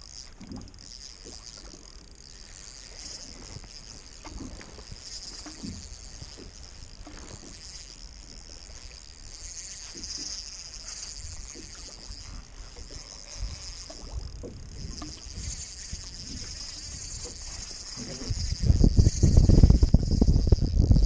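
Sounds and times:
water lapping against boat hull: 0.0 - 21.0
wind buffeting microphone: 10.0 - 21.0.

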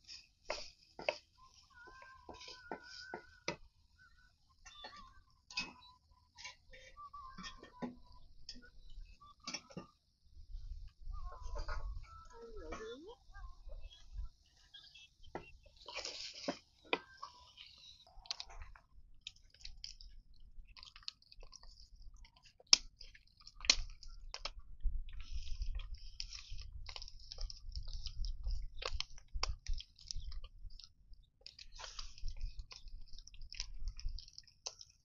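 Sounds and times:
fat popping and crackling: 15.0 - 35.0.

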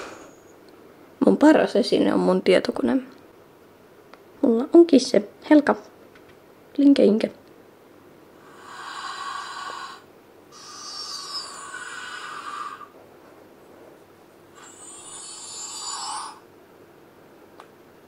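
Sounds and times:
girl blowing out breaths: 0.0 - 0.4.

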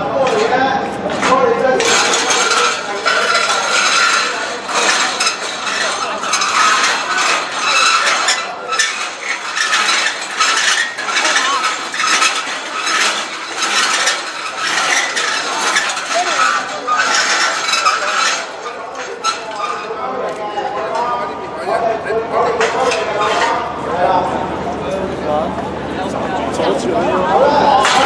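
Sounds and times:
metal barriers rattling: 0.2 - 21.2, 27.7 - 28.0.

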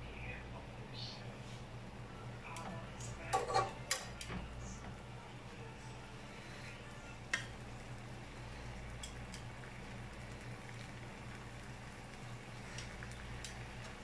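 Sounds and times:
steady low hum: 0.0 - 14.0
metal tongs clicking on grill pan: 2.5 - 4.4, 7.3 - 7.5, 9.0 - 9.5, 12.8 - 14.0.

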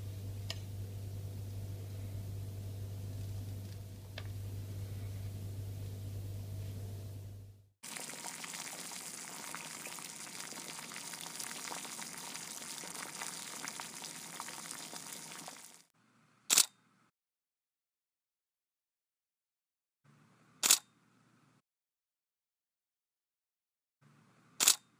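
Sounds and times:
low steady hum: 0.0 - 15.6
sharp click: 20.6 - 20.9, 24.6 - 24.9.

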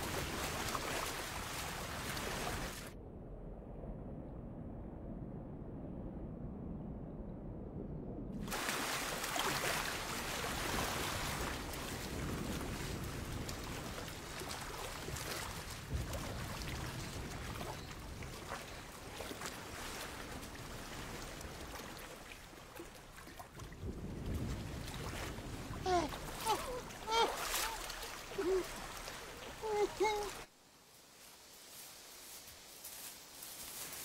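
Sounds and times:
water splashing from swimming: 0.0 - 2.9, 8.4 - 30.5
choppy sea rushing: 0.0 - 3.0, 8.3 - 30.5.

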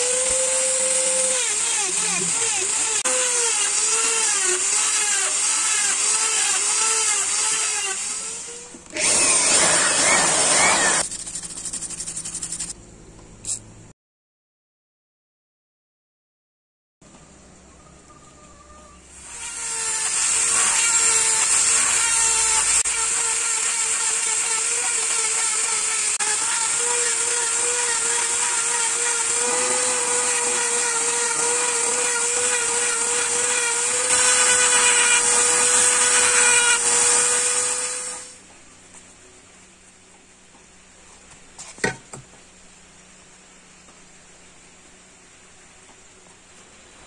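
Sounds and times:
engraver buzzing: 0.0 - 11.1, 19.2 - 38.4.

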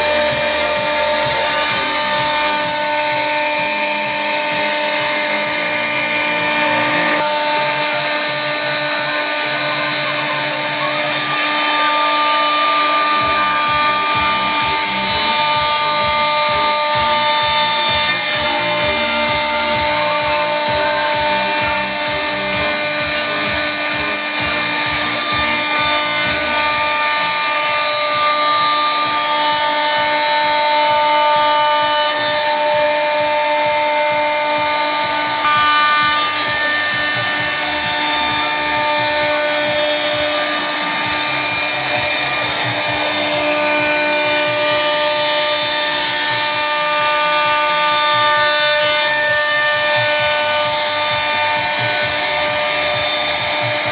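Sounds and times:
bit cutting fibreboard: 0.0 - 53.9
router spindle whine: 0.0 - 53.9.

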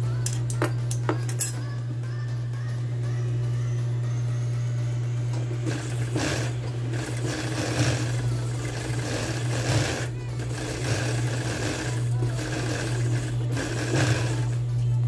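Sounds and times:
motor humming: 1.8 - 15.0
sewing machine stitching: 5.6 - 14.7.

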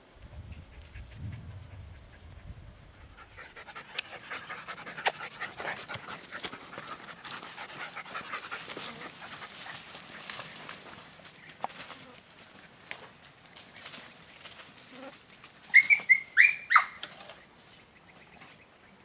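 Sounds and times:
dog panting hard: 0.9 - 10.2
brush rustling: 3.2 - 18.6.

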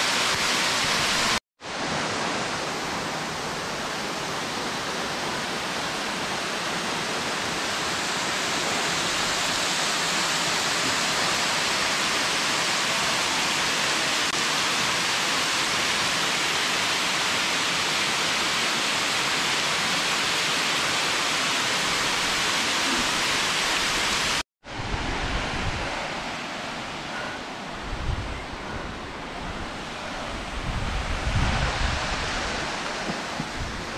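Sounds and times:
waterfall rushing: 0.0 - 33.9
wind buffeting microphone: 27.7 - 33.9.

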